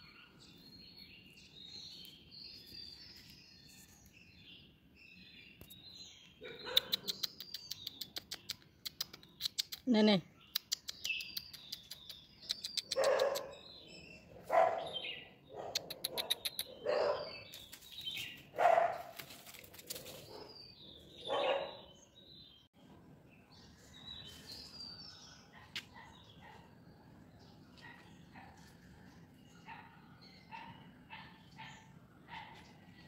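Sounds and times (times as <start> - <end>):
high bird chirping: 0.0 - 19.0.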